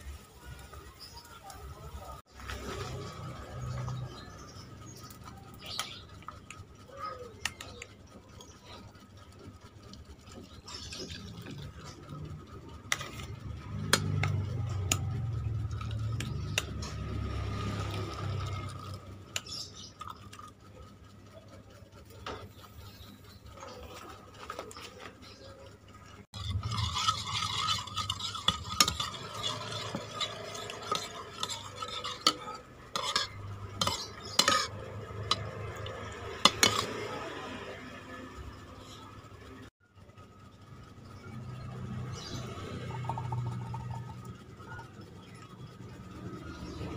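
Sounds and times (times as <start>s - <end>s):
spoon stirring in bowl: 2.4s - 21.0s, 22.0s - 38.0s
saucepan and spoon clinking: 26.4s - 37.6s.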